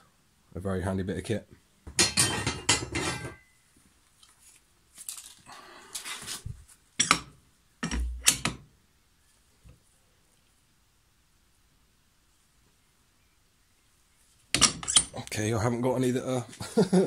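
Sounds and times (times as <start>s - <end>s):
metal blade clanking and rattling: 2.0s - 3.4s, 14.6s - 15.1s.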